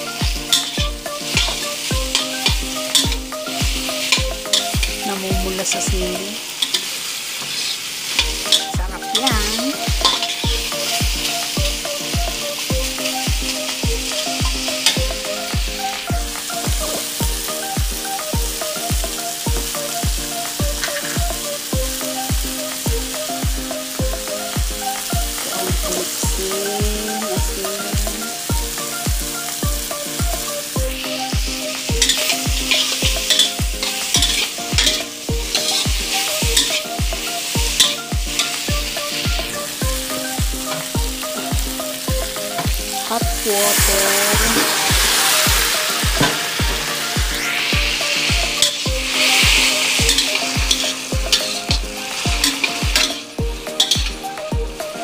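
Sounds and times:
low beat with held tones: 0:00.0 - 0:06.2, 0:08.2 - 0:55.0
okra sizzling in hot oil: 0:00.0 - 0:55.0
metal spatula scraping a wok: 0:32.0 - 0:36.9, 0:48.6 - 0:54.0.

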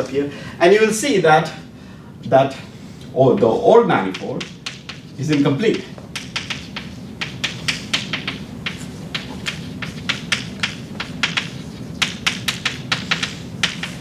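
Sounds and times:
low room hum: 0:00.0 - 0:14.0
chalk tapping on blackboard: 0:03.3 - 0:14.0.

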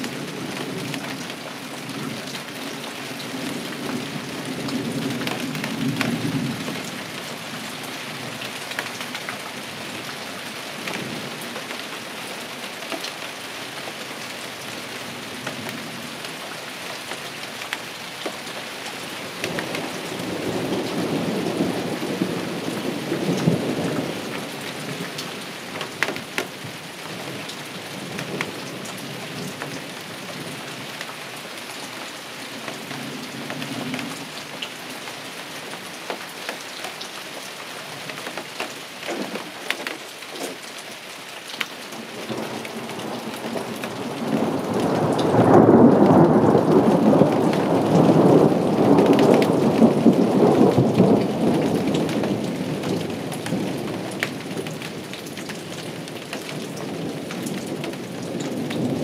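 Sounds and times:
heavy rain: 0:00.0 - 0:59.0
thunder rumbling: 0:42.2 - 0:54.2.

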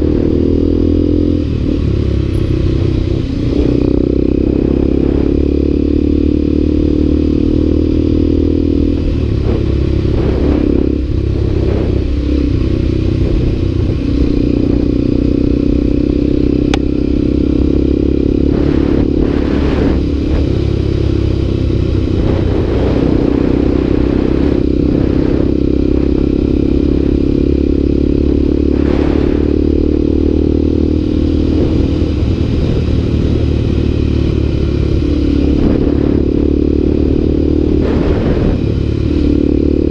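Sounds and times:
motorcycle engine cruising: 0:00.0 - 0:39.9.

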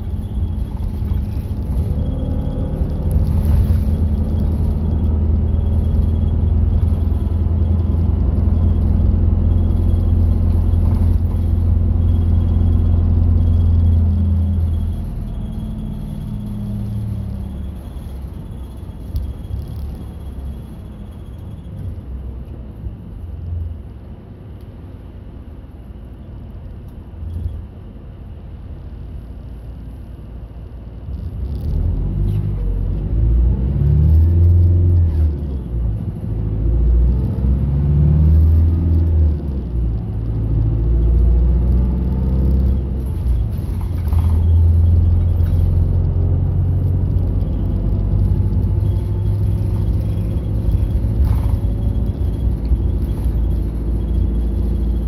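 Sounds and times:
bus diesel engine: 0:00.0 - 0:55.0
road noise: 0:00.0 - 0:55.0.

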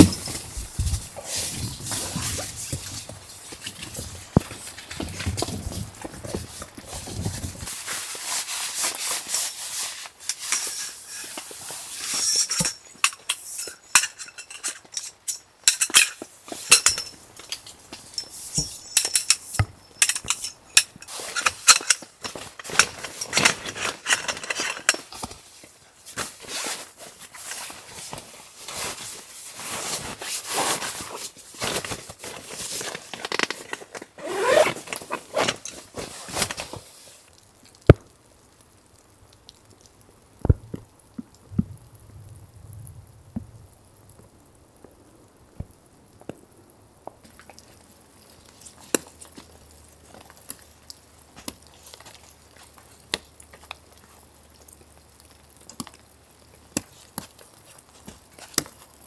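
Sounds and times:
light metallic clinks: 0:12.2 - 0:22.1
gear rustling: 0:29.7 - 0:36.8.

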